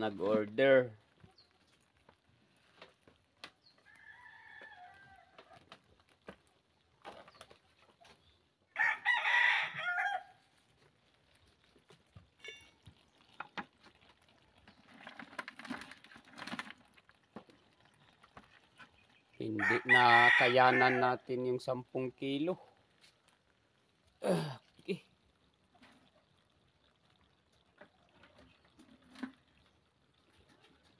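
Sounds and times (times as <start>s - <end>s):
rooster crowing: 3.8s - 5.6s, 8.7s - 10.4s, 19.6s - 21.1s
hands handling lobsters: 10.6s - 19.3s.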